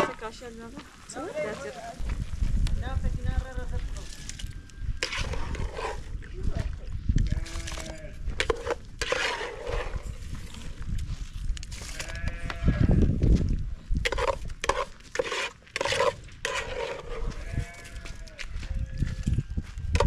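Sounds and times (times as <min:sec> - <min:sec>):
goats bleating: 0:07.3 - 0:08.2, 0:12.0 - 0:13.0, 0:17.1 - 0:19.3.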